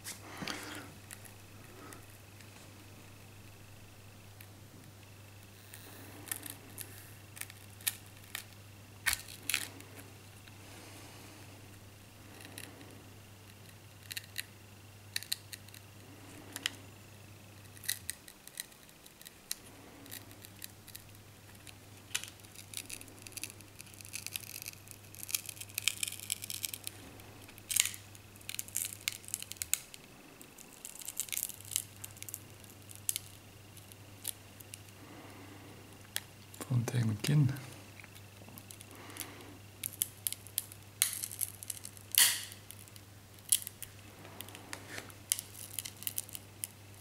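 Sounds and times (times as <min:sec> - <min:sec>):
adhesive clicking and crackling: 0:13.5 - 0:14.5, 0:15.1 - 0:15.9, 0:17.6 - 0:35.2, 0:38.0 - 0:47.0.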